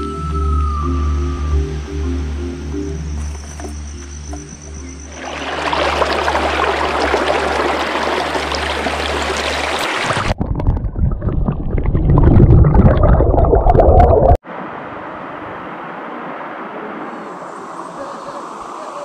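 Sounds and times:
muffled underwater water roar: 5.1 - 18.8.

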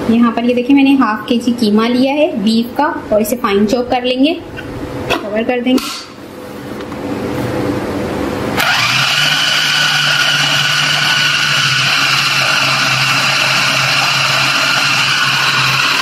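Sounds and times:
electric food chopper whine: 8.6 - 16.0.

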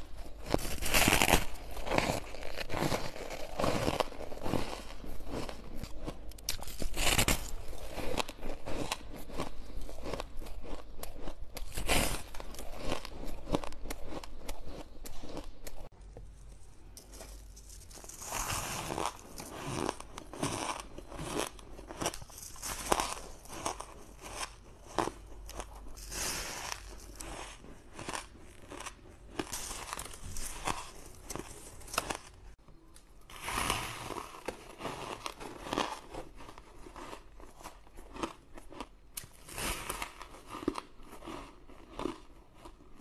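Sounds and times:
ice being chewed: 0.0 - 32.6, 33.4 - 43.0.

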